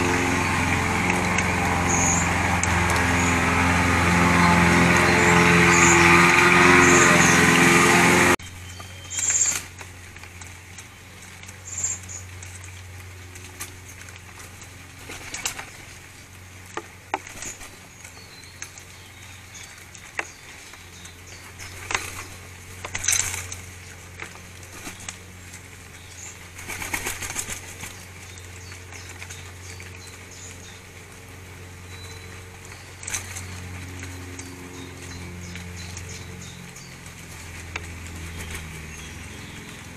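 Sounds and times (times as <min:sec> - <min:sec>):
bird wings flapping: 0:09.2 - 0:18.7, 0:19.9 - 0:39.9.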